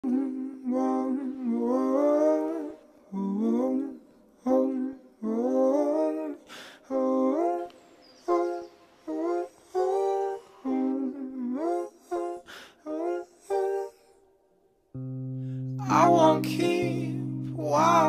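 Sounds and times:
person humming a slow melody: 0.0 - 7.7, 15.0 - 18.0.

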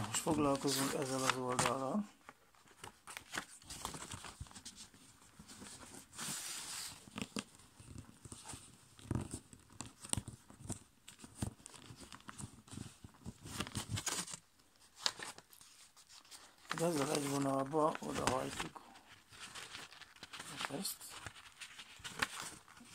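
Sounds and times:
paper rustling and crinkling: 0.0 - 22.9.

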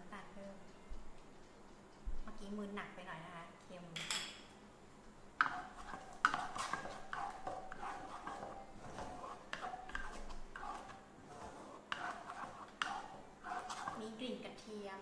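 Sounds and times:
wooden spatula scraping pan: 5.4 - 14.2.

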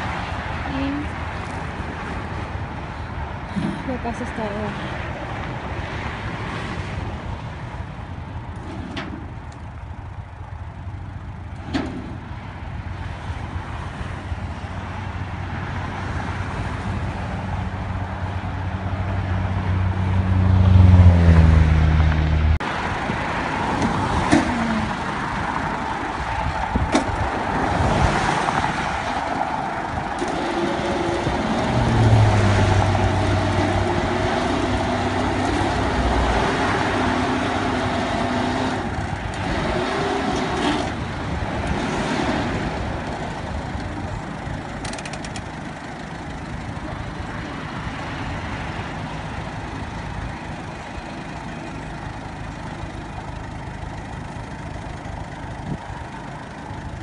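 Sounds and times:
vehicle engine revving: 29.8 - 44.2.

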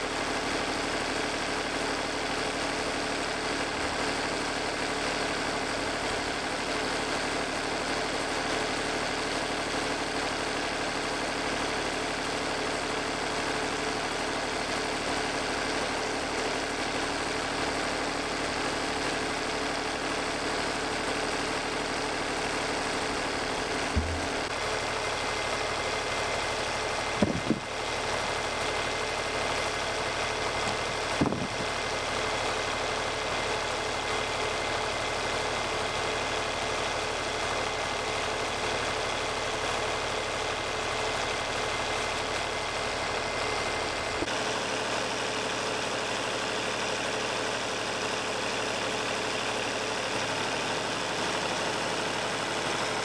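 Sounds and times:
sawmill engine running: 0.0 - 53.0
short knocks: 23.9 - 24.5.

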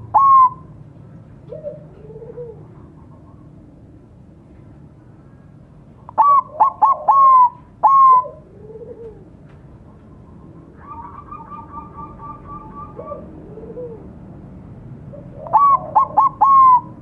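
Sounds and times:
dove cooing whistled notes: 0.0 - 0.7, 1.5 - 3.5, 6.1 - 9.3, 10.6 - 14.1, 15.1 - 17.0
rapid bird trill: 10.8 - 13.3.

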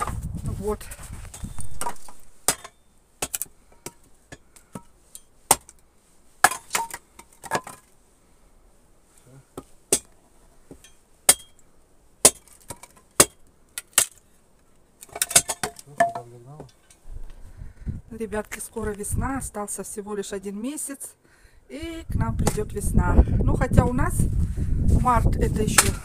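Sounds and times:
axe chopping firewood: 1.7 - 4.9, 5.5 - 5.8, 6.4 - 7.8, 9.6 - 11.6, 12.2 - 14.2, 25.7 - 26.0.

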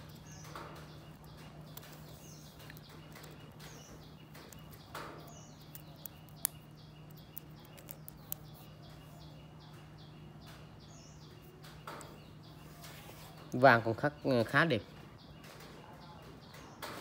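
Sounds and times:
faint high chirping: 0.0 - 13.8
small sharp clicks: 2.6 - 8.6.

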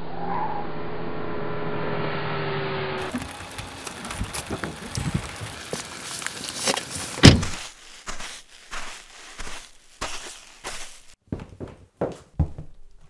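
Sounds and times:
footsteps in slushy snow: 3.1 - 11.2
footsteps on a path: 3.1 - 12.7
car door slamming: 7.2 - 7.6.

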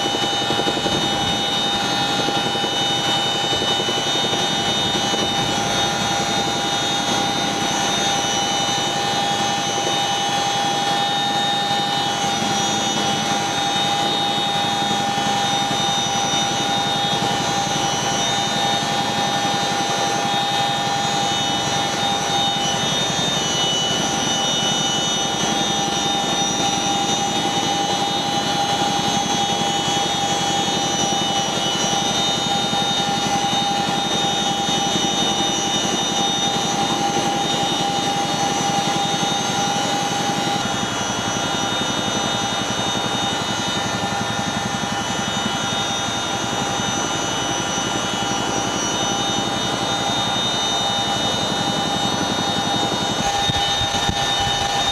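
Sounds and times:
whining tones: 0.0 - 42.4, 47.4 - 54.9
helicopter engines and rotors: 0.0 - 54.9.

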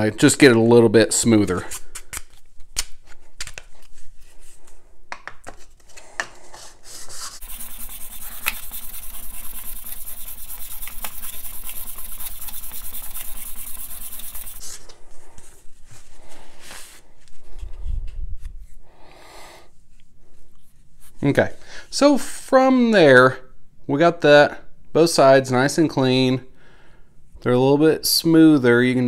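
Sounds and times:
steel scraper scraping on sharpening stone: 7.4 - 14.6.

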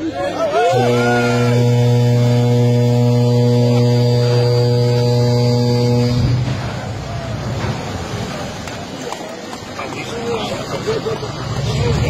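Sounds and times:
noisy background: 0.0 - 12.0
ship's horn blast: 0.5 - 8.6.

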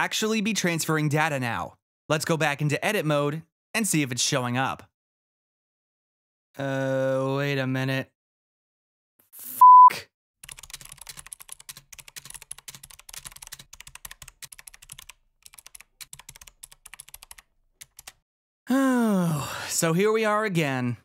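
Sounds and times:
censor bleep: 9.5 - 10.1
keyboard typing: 10.4 - 18.2.

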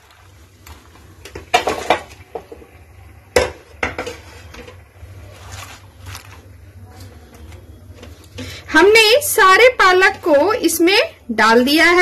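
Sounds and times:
low steady hum: 0.0 - 12.0
leaves rustling: 5.1 - 7.1.

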